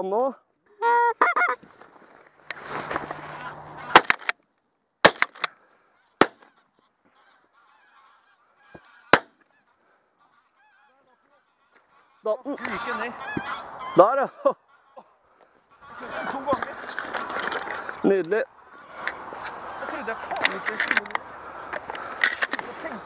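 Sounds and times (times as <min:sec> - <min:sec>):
rustle of person rising: 0:01.6 - 0:03.6
geese honking faintly: 0:02.7 - 0:04.0, 0:05.5 - 0:16.8, 0:17.7 - 0:23.0
shotgun shots: 0:03.9 - 0:04.3, 0:05.0 - 0:05.5, 0:06.2 - 0:06.4, 0:09.1 - 0:09.4.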